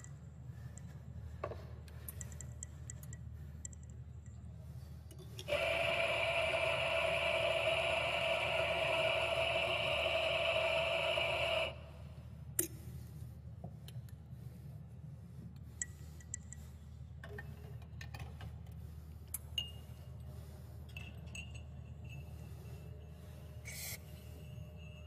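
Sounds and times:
low hum: 0:00.0 - 0:17.8
steam wand hissing: 0:05.5 - 0:11.8, 0:23.6 - 0:24.4.

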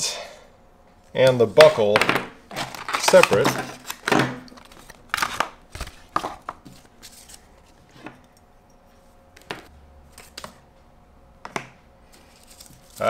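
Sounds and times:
plastic packaging crackling: 0:02.5 - 0:06.2.

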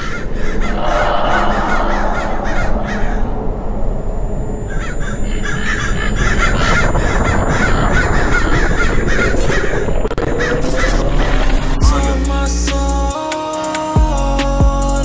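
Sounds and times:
crows cawing: 0:00.0 - 0:03.8, 0:04.6 - 0:11.0
low rising tone: 0:00.6 - 0:12.0.

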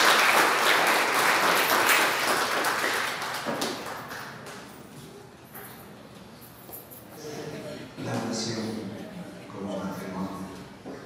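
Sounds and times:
small group applauding: 0:00.0 - 0:04.8.

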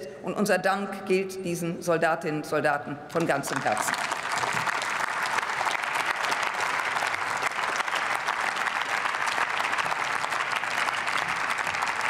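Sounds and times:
crowd applauding: 0:03.5 - 0:12.0.

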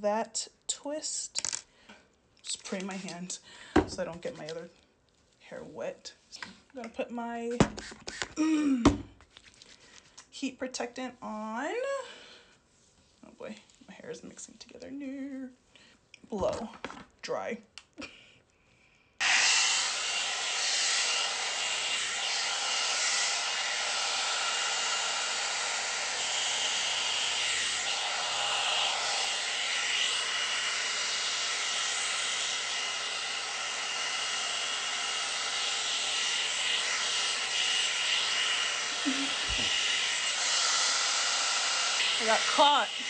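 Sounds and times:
hair dryer brush switching on: 0:19.2 - 0:43.0.

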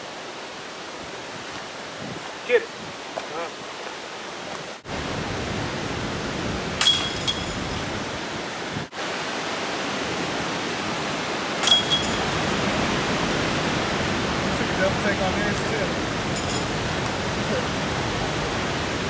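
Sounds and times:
steady background noise: 0:03.1 - 0:19.0
disc golf putts striking chains: 0:06.8 - 0:08.8, 0:11.6 - 0:14.1, 0:16.3 - 0:19.0.

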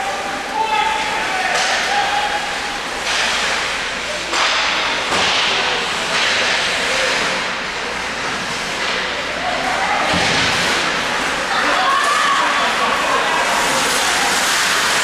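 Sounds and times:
skate blades scraping ice: 0:13.0 - 0:15.0.

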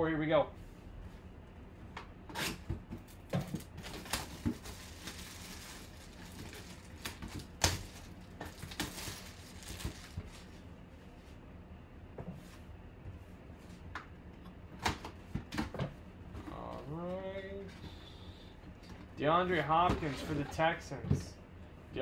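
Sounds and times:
plastic shrink wrap crumpling: 0:03.8 - 0:10.5.

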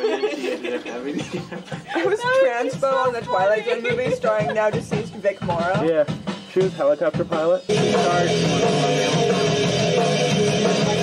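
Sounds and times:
rock band music: 0:02.3 - 0:11.0.

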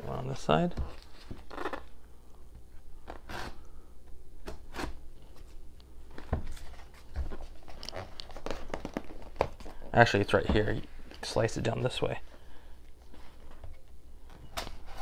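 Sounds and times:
paper tape rustling: 0:06.4 - 0:09.8.

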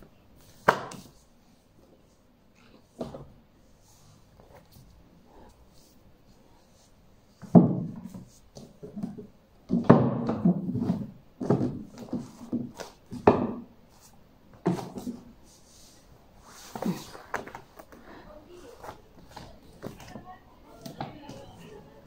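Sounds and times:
books being handled: 0:00.4 - 0:22.0
books thunking on wooden shelf: 0:07.4 - 0:08.2, 0:08.8 - 0:13.7, 0:14.6 - 0:15.3.

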